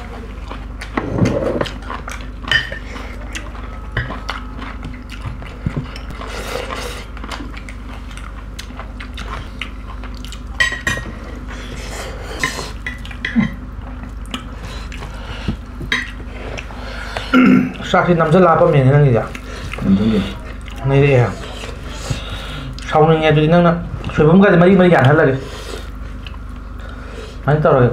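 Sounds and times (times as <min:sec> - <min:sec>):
chewing: 0:00.3 - 0:22.9, 0:25.0 - 0:27.0.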